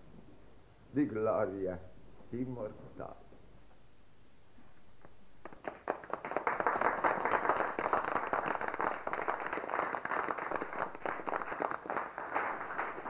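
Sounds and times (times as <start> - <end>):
crowd applauding: 5.4 - 13.0.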